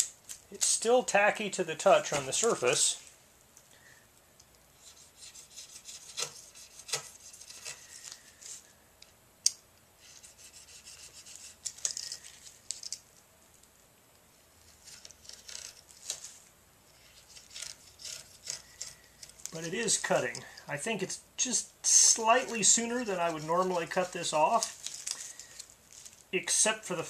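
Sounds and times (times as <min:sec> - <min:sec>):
knife cutting fiberglass cloth: 0:04.9 - 0:07.9, 0:17.1 - 0:20.3.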